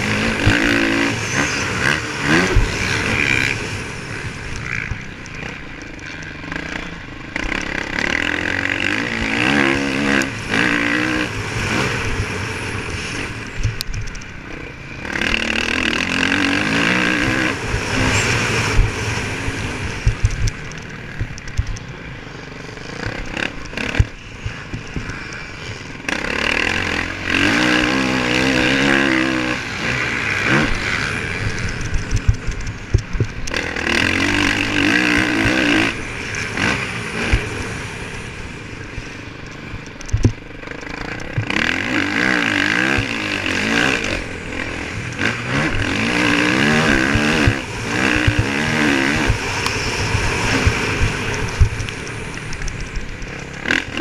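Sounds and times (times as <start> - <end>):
motocross bike engine revving: 0.0 - 54.0
bike knocks and clatter: 20.0 - 21.8, 39.5 - 41.8.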